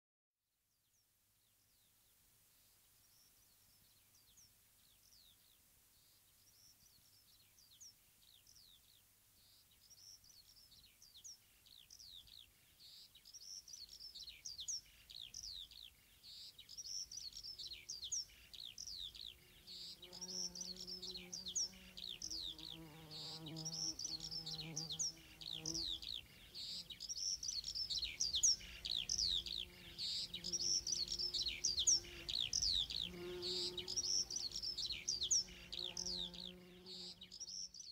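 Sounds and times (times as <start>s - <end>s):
birds chirping: 9.9s - 37.9s.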